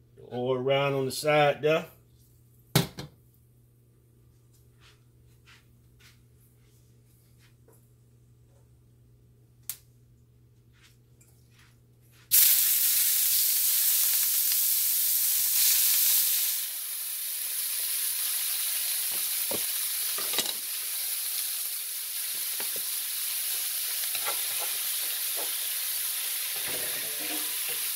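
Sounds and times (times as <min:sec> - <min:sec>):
chicken sizzling in hot oil: 0:12.3 - 0:27.9.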